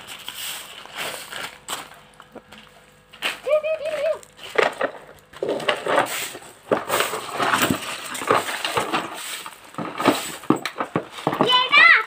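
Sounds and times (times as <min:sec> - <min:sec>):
dry leaves crackling and rustling: 0:00.0 - 0:10.4.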